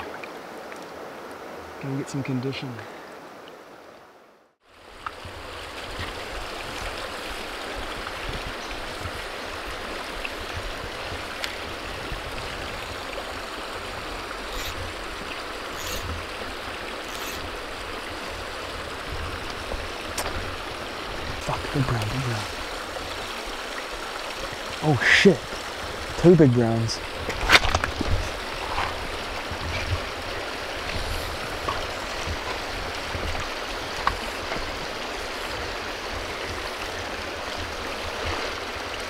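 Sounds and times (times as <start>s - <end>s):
river flowing over stones: 0.0s - 39.0s.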